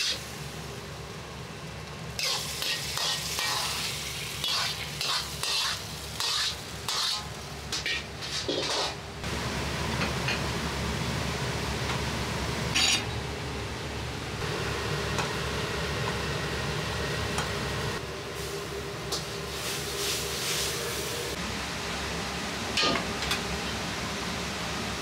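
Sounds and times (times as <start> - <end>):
gas wok burner roaring: 0.0 - 25.0
hiss: 19.4 - 21.4.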